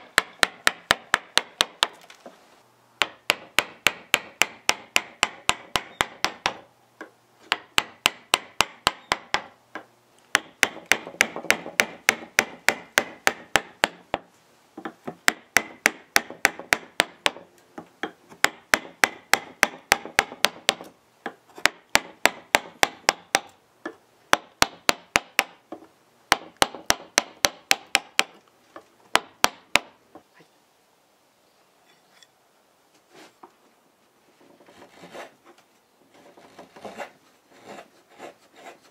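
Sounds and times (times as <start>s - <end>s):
mallet tapping carving gouge: 0.0s - 2.0s, 3.0s - 28.4s, 29.1s - 30.0s.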